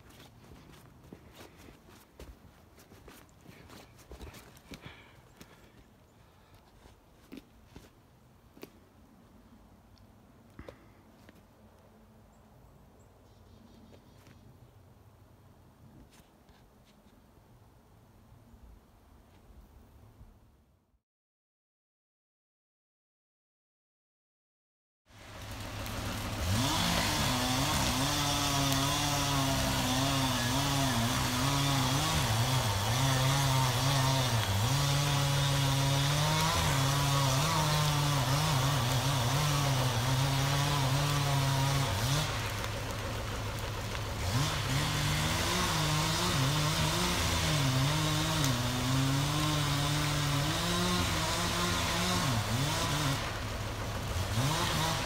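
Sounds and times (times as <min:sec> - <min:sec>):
chainsaw cutting logs: 0:00.0 - 0:08.8, 0:10.6 - 0:11.4, 0:25.1 - 0:55.0.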